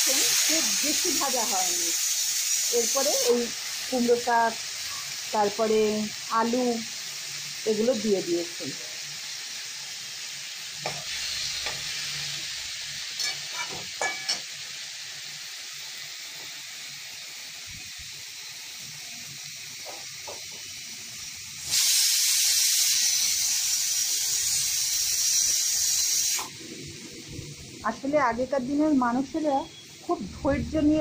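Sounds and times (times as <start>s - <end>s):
loud hiss from hot wok: 0.0s - 31.0s
vegetables sizzling in wok: 0.0s - 31.0s
metal spatula clinking and scraping: 13.2s - 14.5s.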